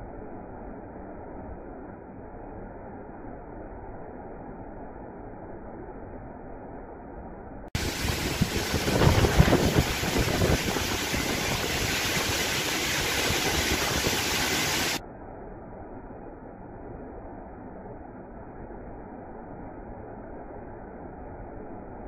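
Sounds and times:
heavy rain: 7.8 - 15.0
strong wind: 7.8 - 15.0
wind buffeting microphone: 7.8 - 15.0.

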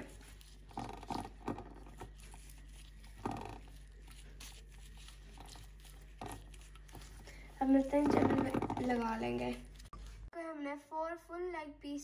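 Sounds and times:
hands squelching marinade into meat: 0.0 - 8.1.

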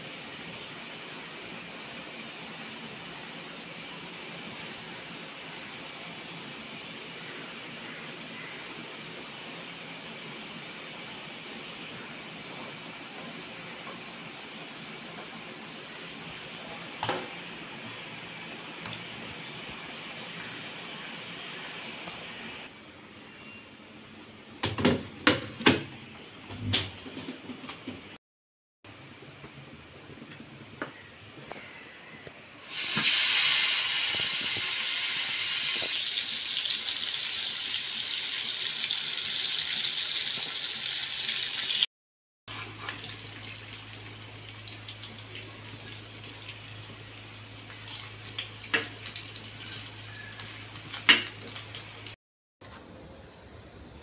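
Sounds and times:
fish sizzling in hot oil: 32.6 - 41.9, 42.5 - 52.2.

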